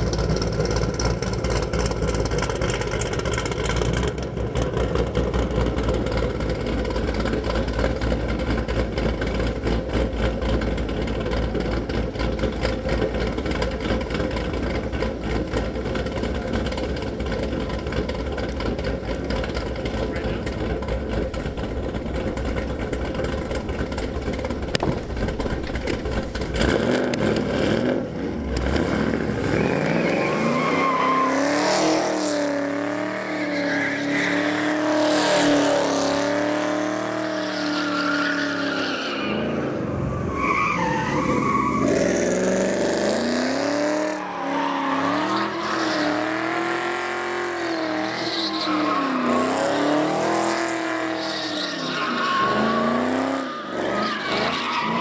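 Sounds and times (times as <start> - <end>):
car engine revving hard: 19.3 - 37.8, 41.6 - 51.2
tires squealing and skidding: 28.5 - 55.0.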